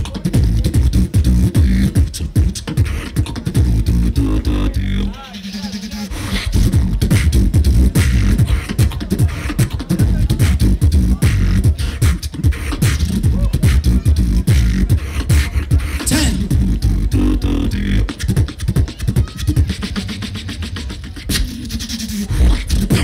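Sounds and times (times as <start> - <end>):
person beatboxing through speakers: 0.0 - 23.0
deep bass hits: 22.3 - 23.0.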